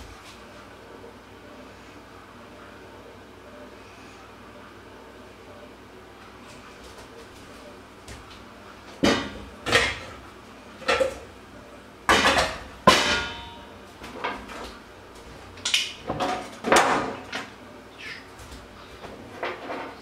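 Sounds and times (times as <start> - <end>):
ringing metal clang: 12.9 - 13.7.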